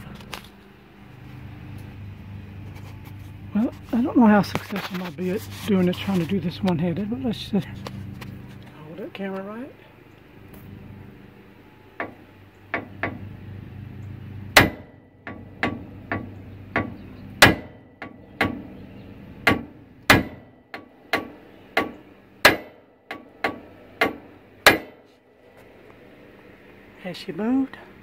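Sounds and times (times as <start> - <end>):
hammer striking metal: 14.6 - 18.7, 19.4 - 25.0.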